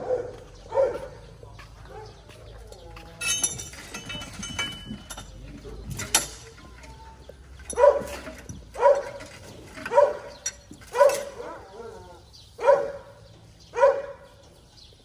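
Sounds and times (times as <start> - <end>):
dog barking: 0.0 - 2.4, 7.7 - 8.2, 8.8 - 9.2, 9.9 - 14.4.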